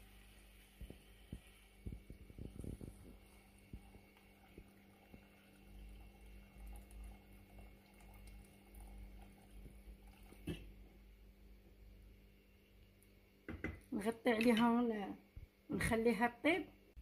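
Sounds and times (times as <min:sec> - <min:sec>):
water pouring into a pot: 0:00.0 - 0:10.8.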